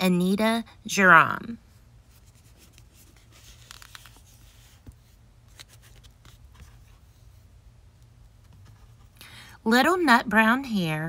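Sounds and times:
soft rustles: 2.0s - 7.5s.

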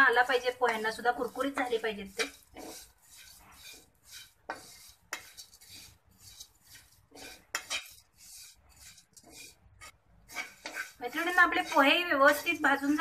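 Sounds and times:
spatula clacking on pan: 0.0s - 13.0s
spatula scraping pan: 0.0s - 13.0s.

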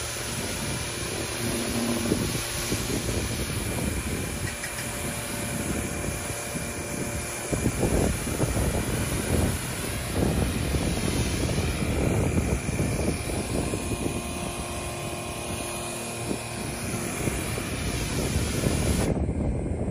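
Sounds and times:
ride-on vacuum sweeper whirring: 0.0s - 19.9s.

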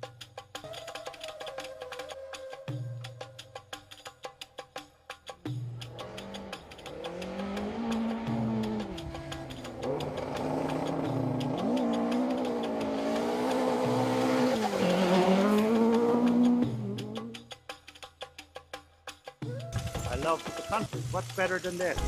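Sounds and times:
rally car engine at full throttle: 5.8s - 17.4s.

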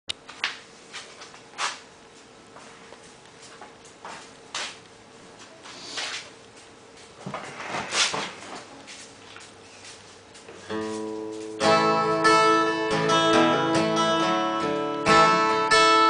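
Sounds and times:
knocks scuffs and rustles: 0.2s - 11.6s.

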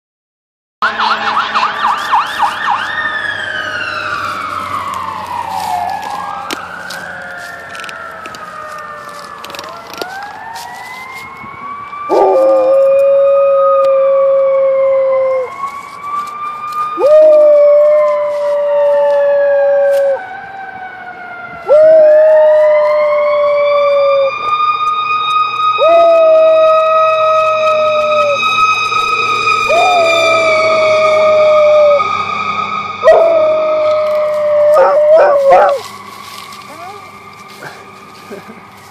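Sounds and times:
fire truck siren: 0.8s - 38.9s
dog howling: 12.1s - 15.6s, 17.0s - 20.2s, 21.6s - 24.6s, 25.8s - 28.6s, 29.3s - 32.1s, 33.0s - 35.9s, 36.7s - 37.1s.

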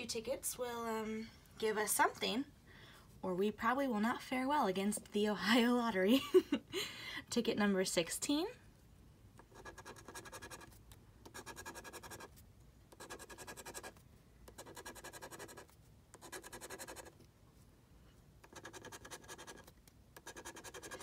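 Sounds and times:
coin scraping scratch card: 9.5s - 12.3s, 12.9s - 17.2s, 18.4s - 21.0s.

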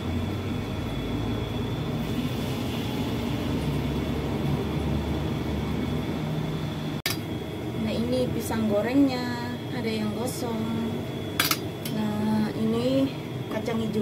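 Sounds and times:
cooker hood fan hum: 0.0s - 14.0s
thin high whine: 0.0s - 14.0s
food frying in oil: 1.2s - 6.3s.

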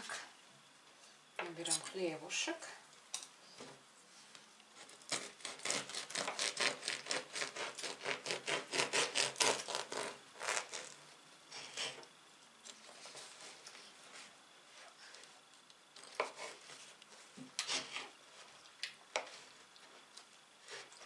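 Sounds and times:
knife sawing through bread crust: 4.8s - 12.0s, 16.1s - 16.9s, 17.6s - 18.1s.

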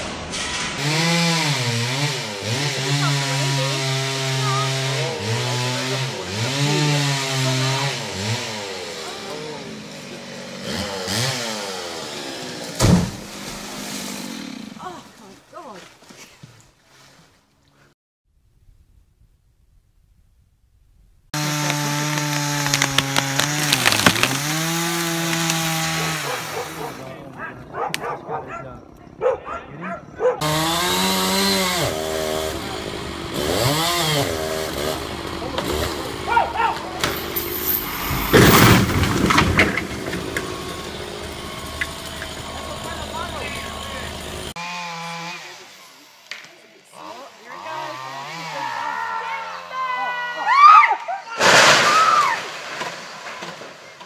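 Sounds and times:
chainsaw revving: 0.8s - 15.0s, 21.4s - 27.2s, 30.4s - 46.1s, 46.9s - 48.8s
wood cracking: 21.4s - 28.2s, 34.8s - 43.1s, 51.4s - 54.0s.

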